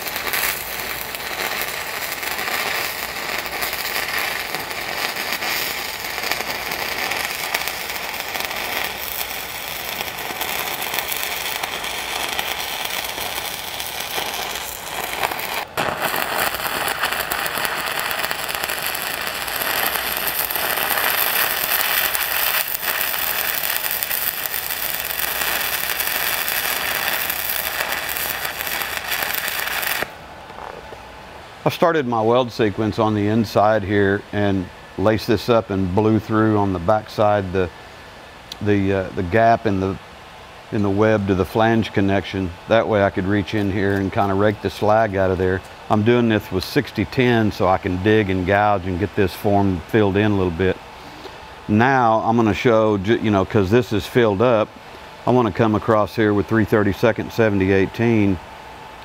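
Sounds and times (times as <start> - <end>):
welding arc crackling: 0.0 - 31.0.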